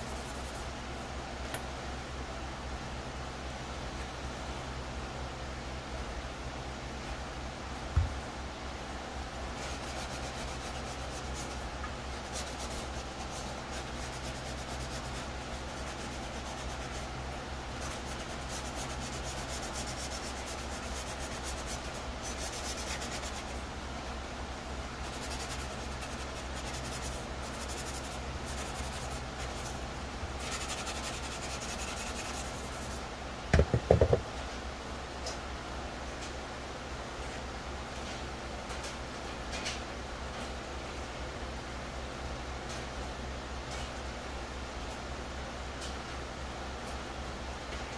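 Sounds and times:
sanding pad scrubbing plastic: 9.6s - 11.6s, 12.2s - 17.1s, 17.8s - 23.6s, 25.0s - 33.0s
helmet knocking on bench: 33.5s - 34.3s.

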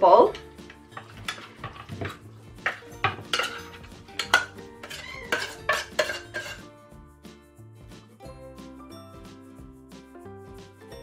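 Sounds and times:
metal spoon scraping a tin: 0.6s - 6.7s.

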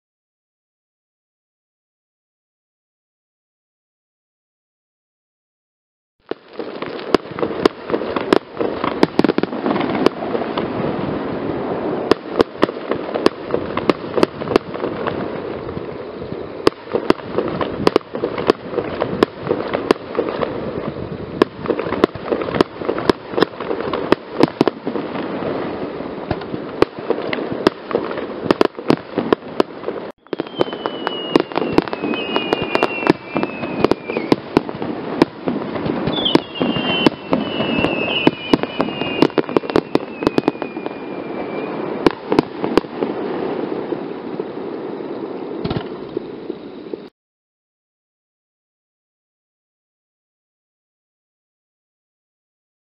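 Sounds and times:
fireworks bursting: 6.2s - 47.1s
firework whistles sliding down: 30.0s - 47.1s.

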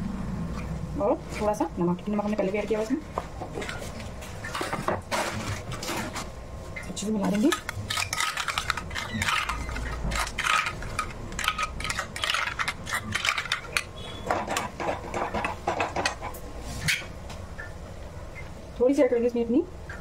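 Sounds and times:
spoon clinking and scraping bowl: 6.9s - 16.3s.

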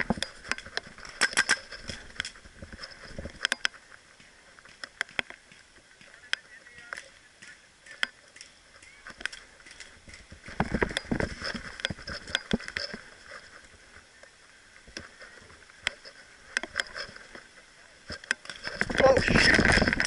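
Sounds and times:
rough rustling and handling: 0.0s - 20.0s.

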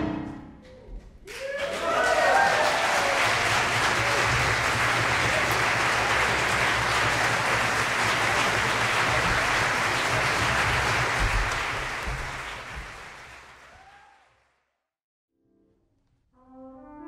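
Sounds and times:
audience applauding: 1.2s - 14.4s.

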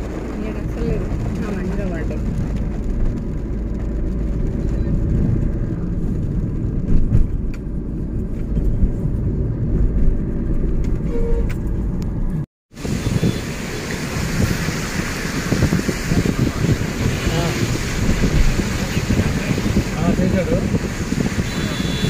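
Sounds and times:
car engine and tyre rumble: 0.0s - 22.0s
wind hiss: 12.8s - 22.0s.

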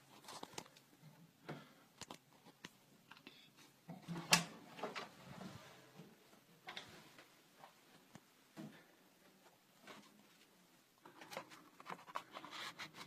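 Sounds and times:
faint clicks and rustles: 0.0s - 13.0s.

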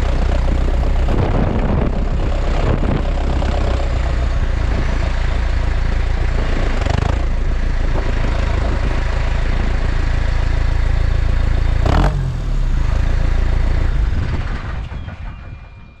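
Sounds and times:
sharp clatter: 0.0s - 10.2s, 13.6s - 16.0s
tractor diesel engine running: 0.0s - 16.0s.

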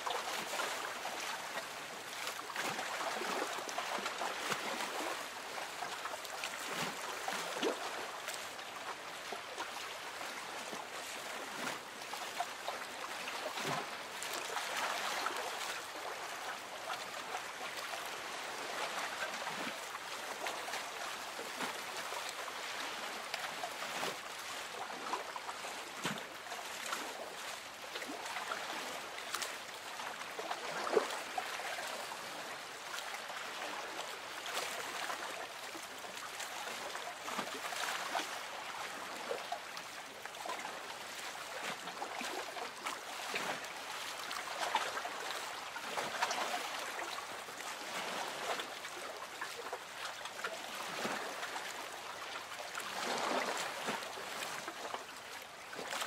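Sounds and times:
small water splashes: 0.0s - 56.0s
water lapping against boat hull: 0.1s - 56.0s.

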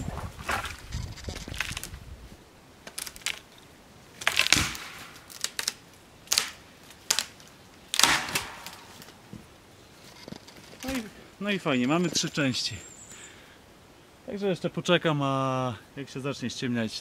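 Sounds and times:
tree trunk cracking and snapping: 0.4s - 2.0s, 2.8s - 9.3s.

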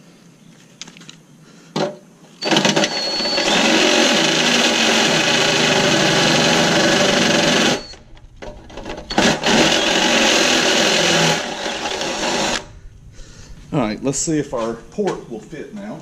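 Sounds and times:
cordless drill cutting steel: 2.4s - 8.1s, 9.1s - 12.7s.

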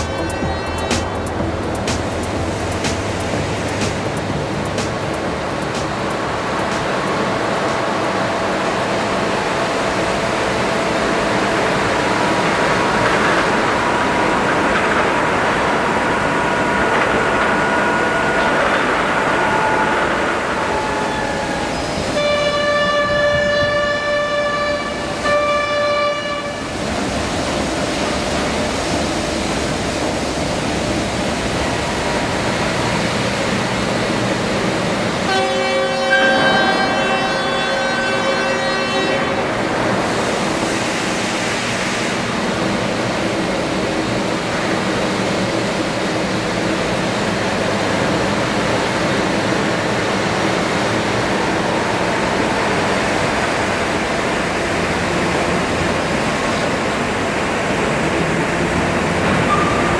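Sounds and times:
train running: 0.0s - 59.9s
locomotive horn blasts: 22.1s - 26.9s, 35.2s - 39.7s.

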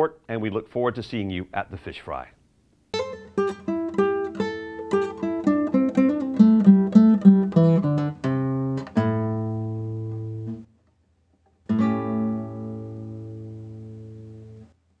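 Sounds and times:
acoustic guitar playing: 2.9s - 10.7s, 11.6s - 14.8s.

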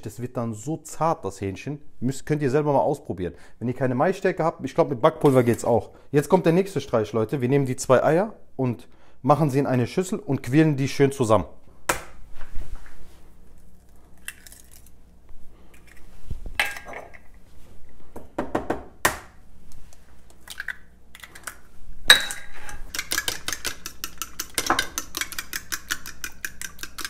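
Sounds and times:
eggs cracked on bowl rim: 14.2s - 15.0s, 20.3s - 27.0s
fork beating eggs in bowl: 22.4s - 27.0s.

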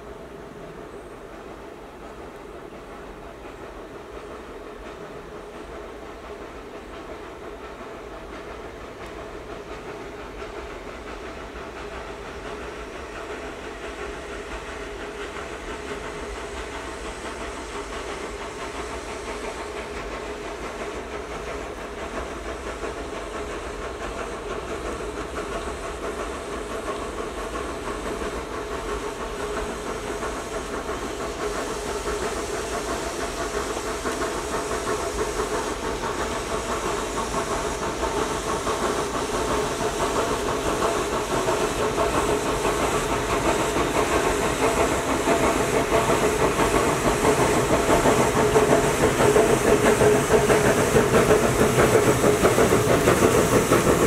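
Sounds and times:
steam locomotive exhaust hissing: 0.0s - 54.0s.

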